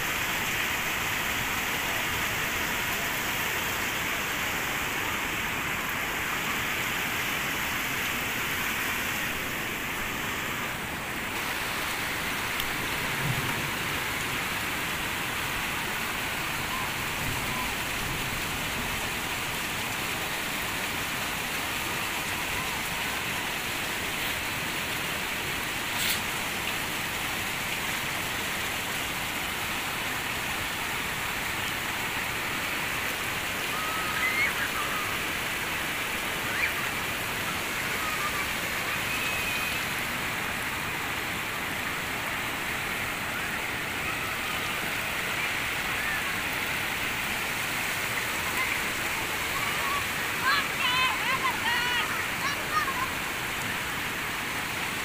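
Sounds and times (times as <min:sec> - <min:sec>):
runoff water rushing across road: 0:00.0 - 0:55.0.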